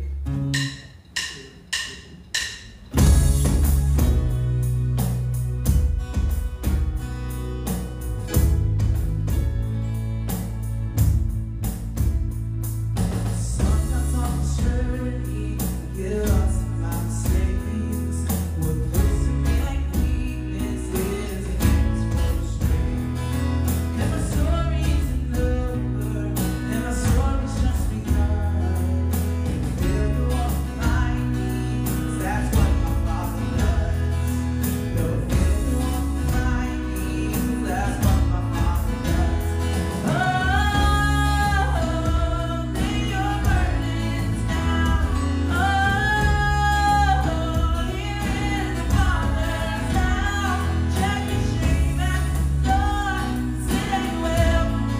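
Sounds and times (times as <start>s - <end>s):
guitar and drums: 0.0s - 54.9s
person singing: 13.4s - 22.9s, 23.9s - 54.9s.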